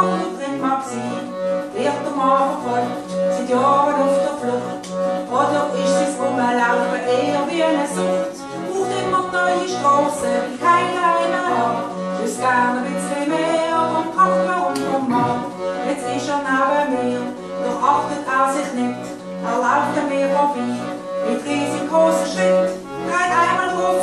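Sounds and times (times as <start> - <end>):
piano accordion: 0.0 - 24.0
woman singing: 0.0 - 24.0
steady bass pulse: 13.9 - 15.8.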